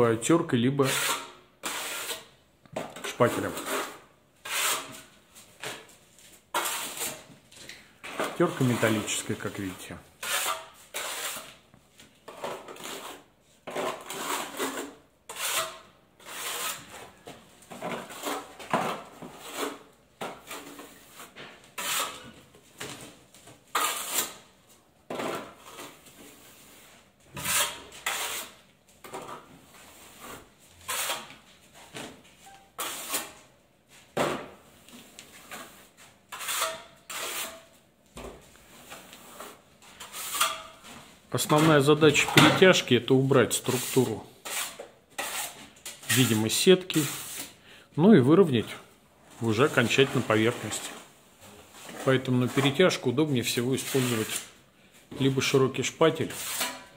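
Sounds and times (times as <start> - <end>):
steel trowel scraping: 0.8 - 2.4, 3.0 - 5.1, 6.5 - 7.3, 8.1 - 11.6, 12.3 - 17.2, 17.9 - 22.4, 23.7 - 24.5, 25.2 - 28.6, 29.2 - 31.4, 32.4 - 33.5, 35.2 - 37.8, 38.7 - 47.6, 51.7 - 54.6, 56.2 - 56.9.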